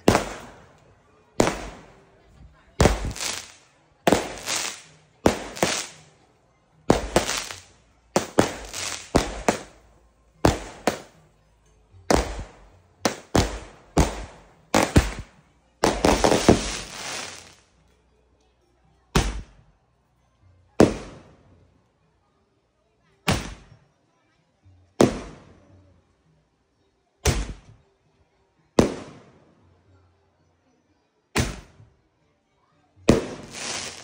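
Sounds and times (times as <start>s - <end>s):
firework bangs: 0.0s - 0.6s, 1.4s - 1.9s, 2.8s - 6.0s, 6.9s - 9.8s, 10.4s - 11.2s, 12.1s - 17.6s, 33.1s - 34.0s.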